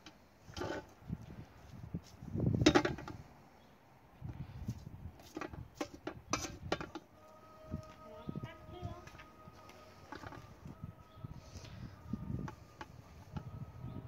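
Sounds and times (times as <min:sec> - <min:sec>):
rustling scrape: 0:00.4 - 0:03.3.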